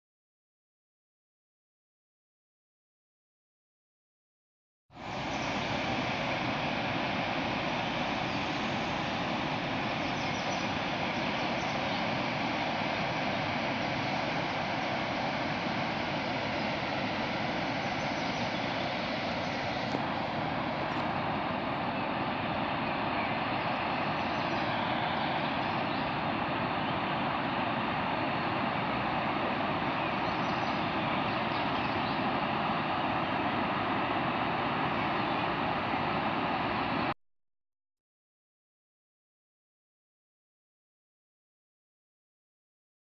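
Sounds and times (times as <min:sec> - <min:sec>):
steady rushing noise: 0:04.9 - 0:37.1.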